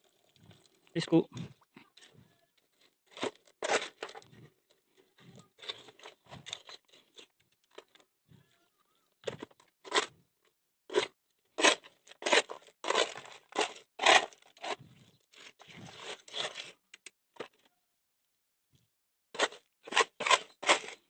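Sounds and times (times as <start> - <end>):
hand scraping dry cement mix: 0.0 - 8.0, 10.9 - 17.6, 19.4 - 21.0.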